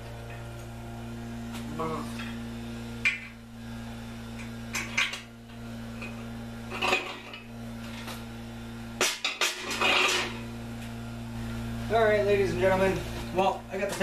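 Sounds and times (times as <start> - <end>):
steady electrical hum: 0.0 - 14.0
metal tools clinking: 6.0 - 7.4.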